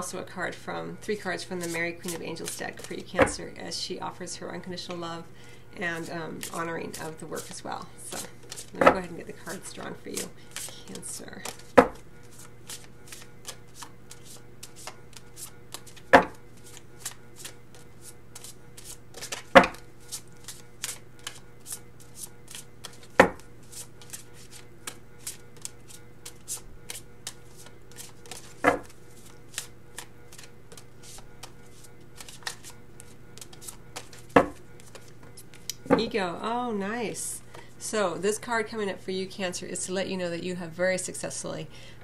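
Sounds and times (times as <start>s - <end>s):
low steady hum: 0.0s - 42.0s
cards being shuffled: 0.5s - 3.4s, 5.9s - 36.0s
deck knocking against table: 16.1s - 16.4s, 23.2s - 23.4s.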